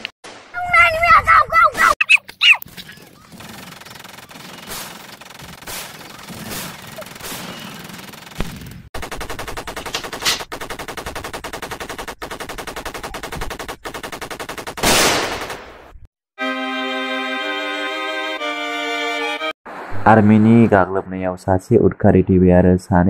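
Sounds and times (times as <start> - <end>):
rapid automatic gunfire: 3.1 - 15.7
gunshots: 3.3 - 15.8.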